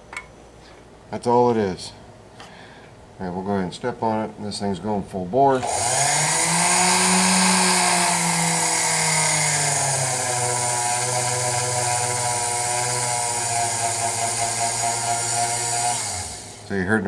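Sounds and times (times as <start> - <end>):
rotary tool motor running: 5.6 - 16.6.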